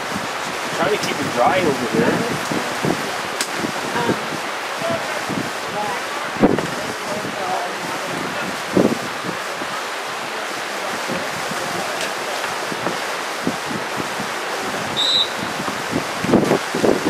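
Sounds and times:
wind buffeting microphone: 0:00.0 - 0:17.0
high whistle-like tone: 0:15.0 - 0:15.5.

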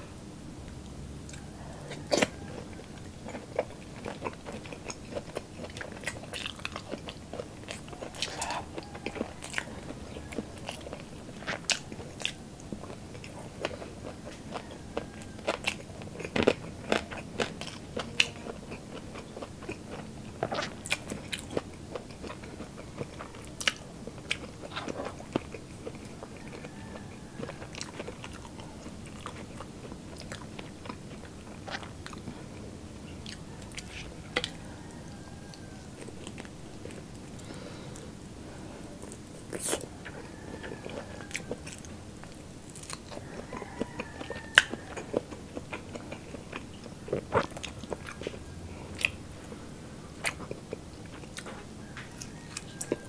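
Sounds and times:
chewing: 0:00.7 - 0:38.1, 0:38.9 - 0:53.0
crispy food crunching: 0:00.7 - 0:38.1, 0:39.0 - 0:53.0.

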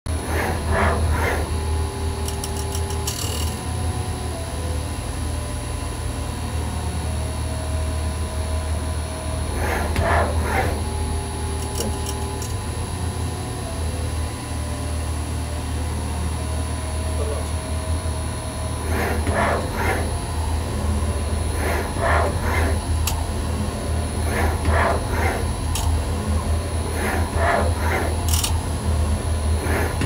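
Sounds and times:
grinder machine humming: 0:00.1 - 0:30.0
grinding head whine: 0:00.1 - 0:30.0.

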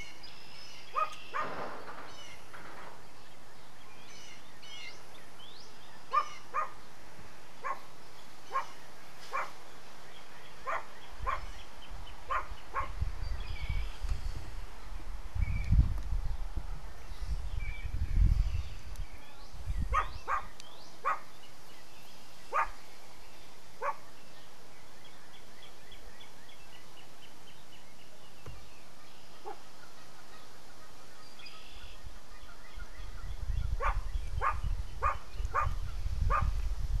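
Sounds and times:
dog barking: 0:01.0 - 0:01.5, 0:06.1 - 0:06.8, 0:07.6 - 0:07.9, 0:08.5 - 0:08.7, 0:09.3 - 0:09.6, 0:10.6 - 0:11.5, 0:12.3 - 0:13.0, 0:19.9 - 0:21.3, 0:22.5 - 0:22.8, 0:23.8 - 0:24.1, 0:33.8 - 0:36.5.

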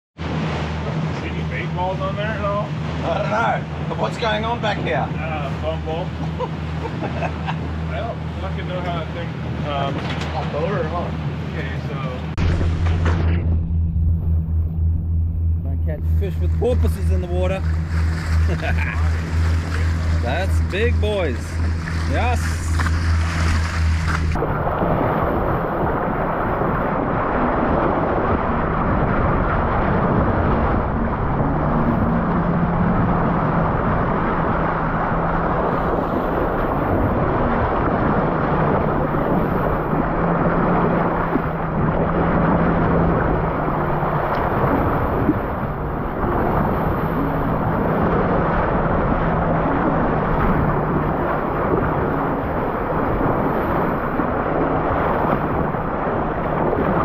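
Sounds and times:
boat engine drone: 0:00.2 - 0:57.0
water sluicing along boat hull: 0:00.2 - 0:57.0
wind on microphone: 0:08.5 - 0:57.0.

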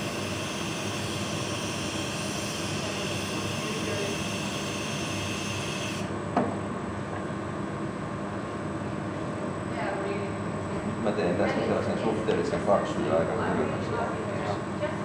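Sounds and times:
hiss: 0:00.0 - 0:06.1
furnace and ventilation roar: 0:00.0 - 0:15.0.

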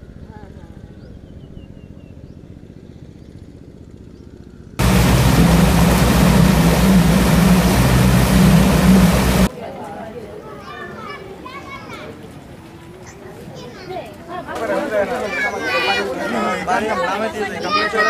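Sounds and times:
boat engine running: 0:04.8 - 0:09.5
hissing rush of noise: 0:04.8 - 0:09.5.

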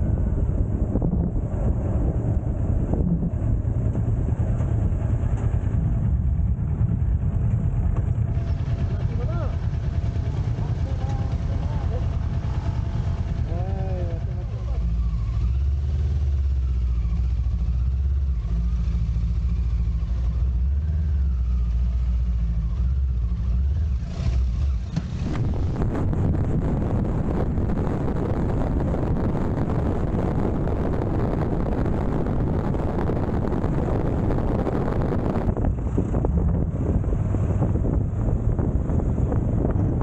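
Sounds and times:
wind rushing over microphone: 0:00.0 - 0:14.4, 0:24.2 - 0:40.0
motorcycle engine droning: 0:00.0 - 0:40.0.

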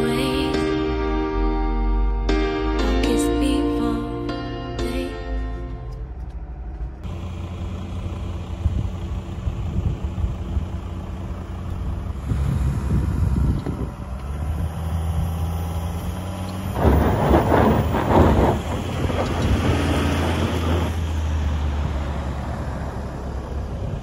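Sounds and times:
diesel car engine hum: 0:00.0 - 0:24.0
tyre and road noise: 0:05.4 - 0:24.0.

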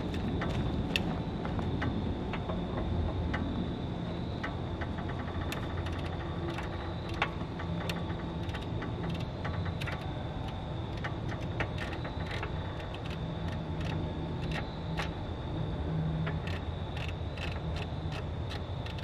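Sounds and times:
steady low hum: 0:00.0 - 0:19.0
metallic clicks of hand tools: 0:05.1 - 0:15.2, 0:16.3 - 0:19.0.

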